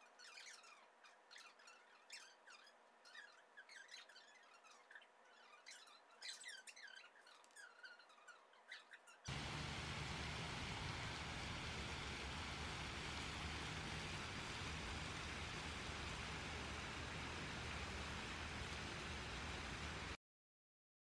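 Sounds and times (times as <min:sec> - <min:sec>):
high-pitched chirps and squeaks: 0:00.0 - 0:09.3
fountain water splashing: 0:09.3 - 0:20.2.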